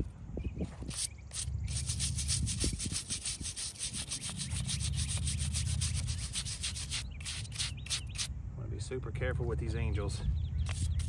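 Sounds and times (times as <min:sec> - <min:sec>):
hand brush scrubbing stone: 0:00.9 - 0:08.3, 0:10.6 - 0:11.0.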